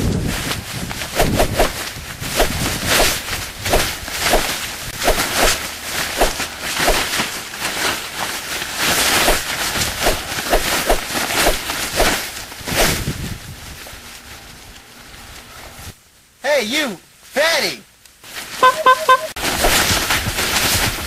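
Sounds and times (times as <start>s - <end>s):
short hits and swishes: 1.0s - 7.3s, 9.1s - 13.0s.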